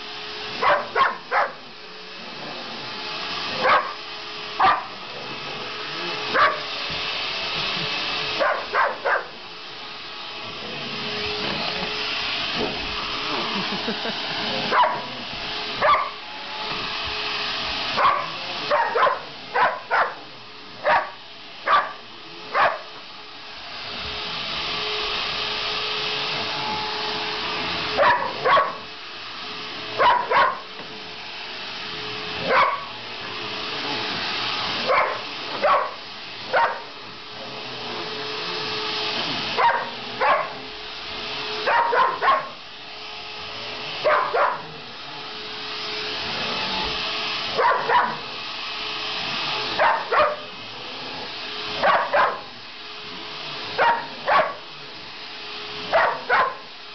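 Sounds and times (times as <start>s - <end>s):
vacuum cleaner humming: 0.0s - 56.9s
dog barking: 0.6s - 1.6s, 3.6s - 4.0s, 4.6s - 4.9s, 6.3s - 6.7s, 8.4s - 9.3s, 14.7s - 15.1s, 15.8s - 16.2s, 18.0s - 20.2s, 20.8s - 22.9s, 28.0s - 28.8s, 30.0s - 30.6s, 32.4s - 32.9s, 34.9s - 36.9s, 39.6s - 40.6s, 41.7s - 42.6s, 44.0s - 44.7s, 47.6s - 48.2s, 49.8s - 50.5s, 51.8s - 52.5s, 53.8s - 54.6s, 55.9s - 56.7s.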